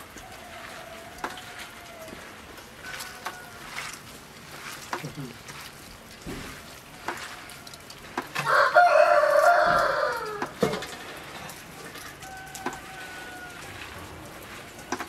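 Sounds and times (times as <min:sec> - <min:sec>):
rooster crowing: 0:00.1 - 0:04.0, 0:08.4 - 0:10.6, 0:11.9 - 0:14.3.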